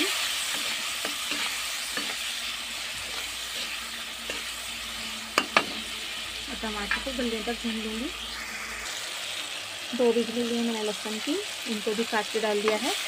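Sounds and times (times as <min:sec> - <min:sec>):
spatula scraping pan: 0:00.0 - 0:06.2
food sizzling in hot oil: 0:00.0 - 0:13.0.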